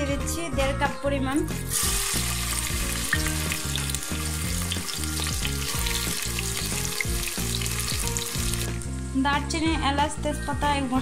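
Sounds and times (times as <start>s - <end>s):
background music: 0.0s - 11.0s
onions sizzling in oil: 1.6s - 9.2s.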